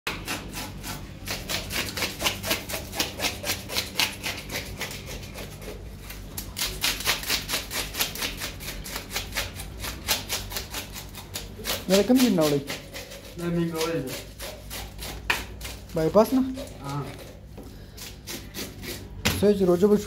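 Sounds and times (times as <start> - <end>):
fast scraping strokes: 6.6 - 17.0.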